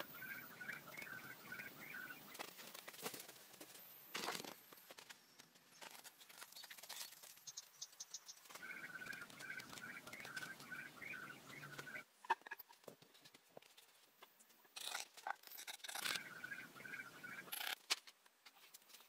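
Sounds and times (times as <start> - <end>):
rapid chirping: 0.0 - 2.5, 6.5 - 12.4, 15.5 - 17.8.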